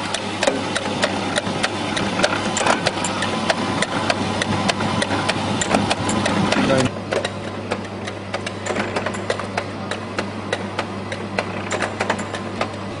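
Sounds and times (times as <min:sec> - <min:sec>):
machine humming: 0:00.0 - 0:13.0
sharp mechanical clicks: 0:00.1 - 0:12.8.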